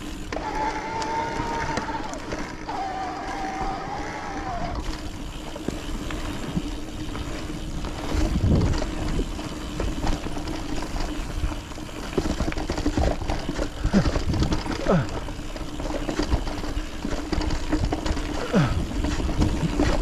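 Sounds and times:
bike rattling and clicking: 0:00.0 - 0:20.0
tyres rumbling: 0:00.0 - 0:20.0
wind buffeting microphone: 0:08.0 - 0:10.4.

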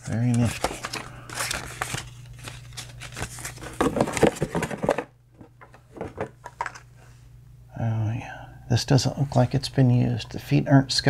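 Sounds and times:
paper and cardboard rustling: 0:00.0 - 0:06.8.

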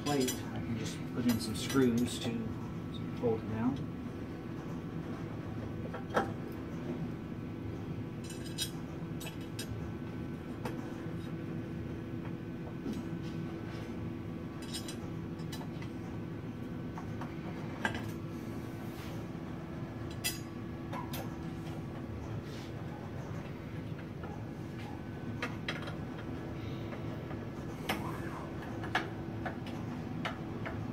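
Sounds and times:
steady hum: 0:00.0 - 0:30.9
metallic clicks and clinks: 0:14.6 - 0:15.7.

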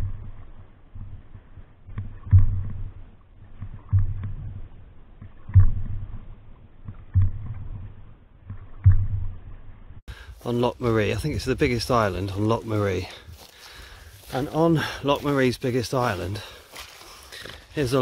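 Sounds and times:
low thump: 0:01.9 - 0:03.0, 0:03.6 - 0:09.7.

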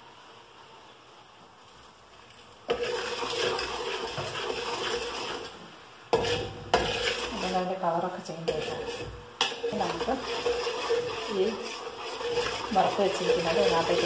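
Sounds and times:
faint hiss: 0:00.0 - 0:02.7
metal spatula scraping metal pot: 0:02.7 - 0:14.0.

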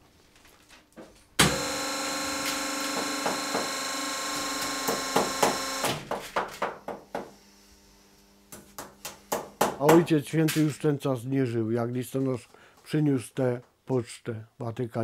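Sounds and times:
electric motor humming: 0:01.4 - 0:06.0.

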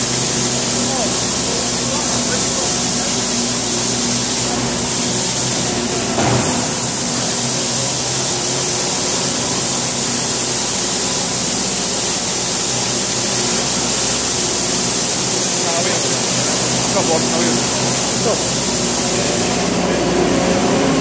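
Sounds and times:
broom hissing: 0:00.0 - 0:19.7
loud bump: 0:06.1 - 0:07.0.

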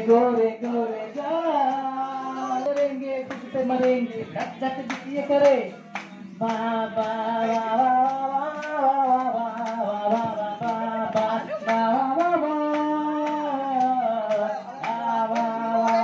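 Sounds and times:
acoustic guitar strummed: 0:00.0 - 0:16.0
man singing through a microphone: 0:00.0 - 0:16.0.

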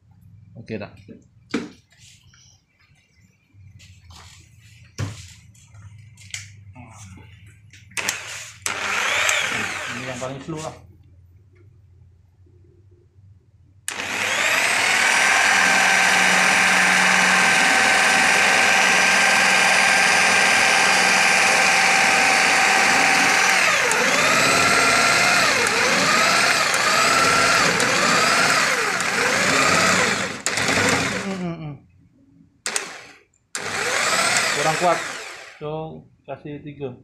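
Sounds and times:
jigsaw blade cutting wood: 0:08.0 - 0:10.4, 0:13.9 - 0:31.4, 0:32.7 - 0:35.6
jigsaw motor running: 0:08.0 - 0:10.4, 0:13.9 - 0:31.4, 0:32.7 - 0:35.6.

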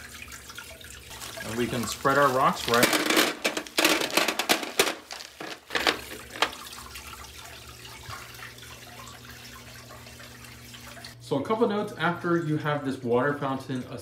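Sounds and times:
water trickling into basin: 0:00.0 - 0:02.8, 0:06.0 - 0:11.2
pebbles clattering into metal basin: 0:01.3 - 0:06.7.

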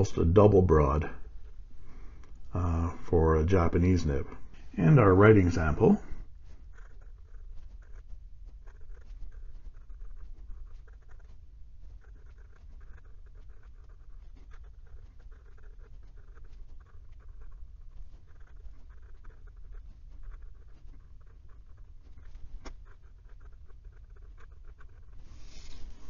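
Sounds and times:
pen nib scratching paper: 0:06.3 - 0:26.0.

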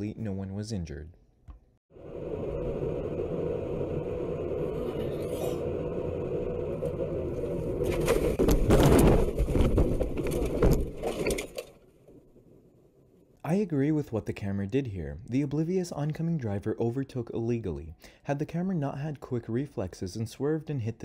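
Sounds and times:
car crashing and scraping: 0:07.8 - 0:11.8.

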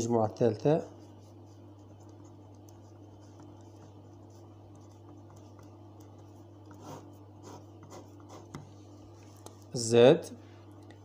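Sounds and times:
low electrical hum: 0:00.0 - 0:11.0
pen scratching on paper: 0:00.9 - 0:08.7.

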